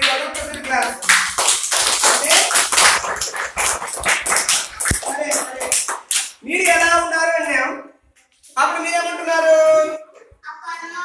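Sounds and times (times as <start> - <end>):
children clapping hands: 0.0 - 6.9
children's voices: 10.2 - 11.0.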